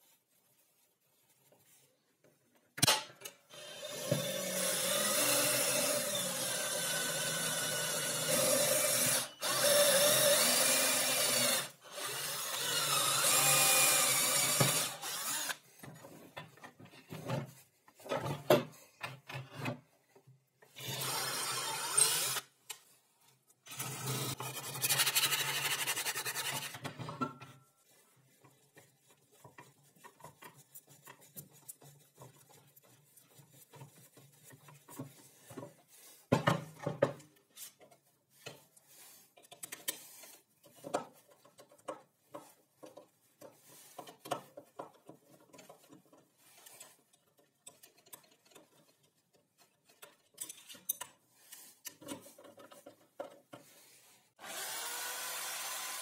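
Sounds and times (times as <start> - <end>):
power tool running: 54.4 - 56.0.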